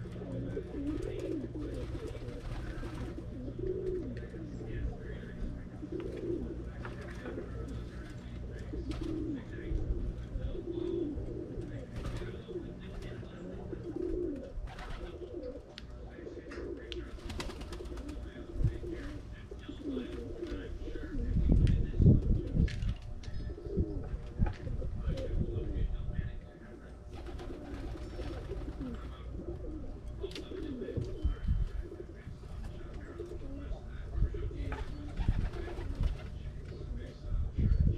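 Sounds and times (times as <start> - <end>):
pigeons cooing: 0.0 - 37.9
low background rumble: 16.8 - 37.9.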